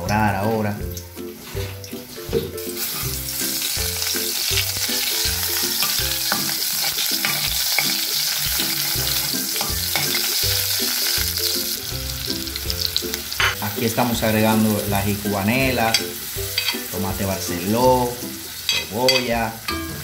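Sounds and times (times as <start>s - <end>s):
garlic sizzling in hot oil: 0.3s - 20.0s
spatula stirring in pot: 2.6s - 11.5s.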